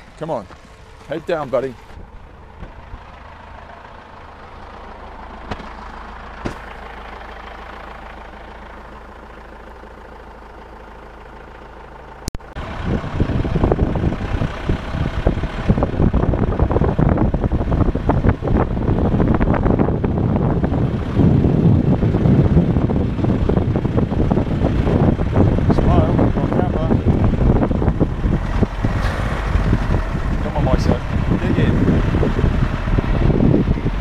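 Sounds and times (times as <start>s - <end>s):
vehicle engine running: 0.0s - 34.0s
wind buffeting microphone: 12.6s - 34.0s.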